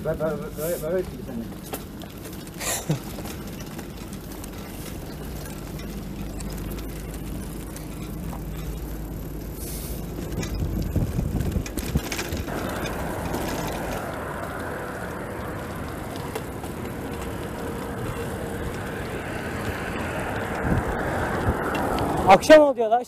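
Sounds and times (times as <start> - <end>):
bicycle knocks and rattles: 0.0 - 22.3
bicycle tyre and road noise: 0.0 - 23.0
wind on microphone: 10.0 - 22.5.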